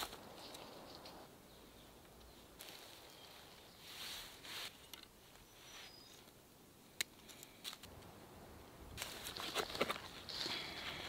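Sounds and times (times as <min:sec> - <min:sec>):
rustling: 0:02.6 - 0:06.3.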